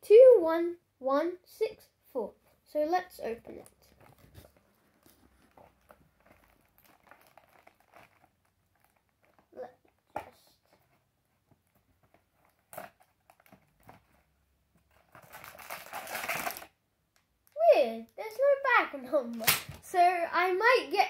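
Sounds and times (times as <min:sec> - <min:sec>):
cardboard flap crinkling and tearing: 0:04.0 - 0:09.5, 0:14.9 - 0:16.7.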